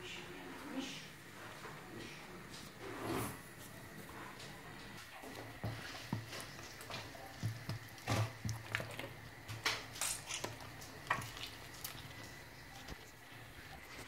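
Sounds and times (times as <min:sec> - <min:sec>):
wet splashes and squelches: 0:10.0 - 0:12.4.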